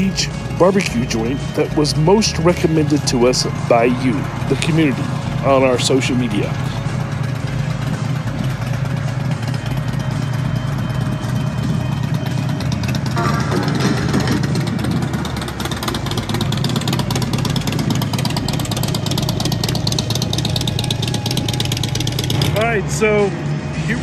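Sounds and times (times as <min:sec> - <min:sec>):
motorcycle engine running: 0:00.0 - 0:24.0.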